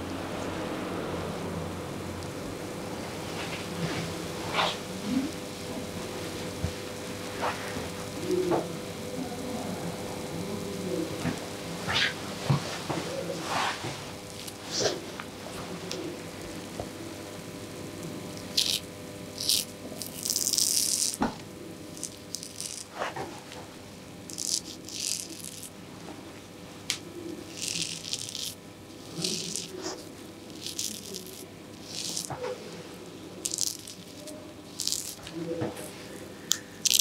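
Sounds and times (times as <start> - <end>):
razor scraping stubble: 12.9 - 16.6, 18.3 - 25.8, 27.3 - 37.0.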